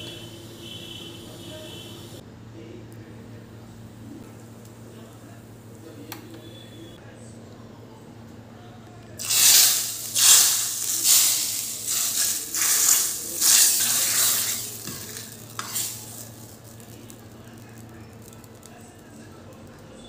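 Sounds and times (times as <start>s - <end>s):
ladle stirring thick dal in pan: 9.2s - 16.9s.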